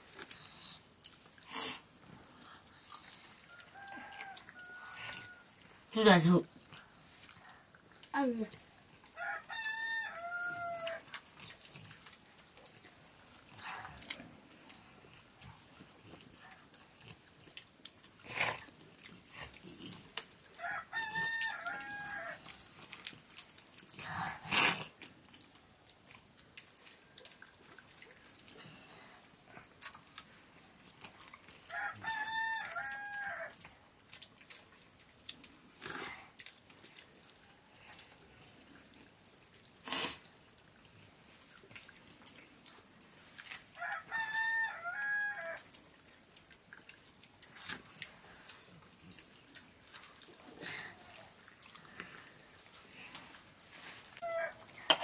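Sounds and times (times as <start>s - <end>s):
rooster crowing: 3.5s - 5.6s, 9.2s - 11.1s, 20.6s - 22.4s, 31.7s - 33.6s, 43.8s - 45.7s, 54.2s - 54.7s.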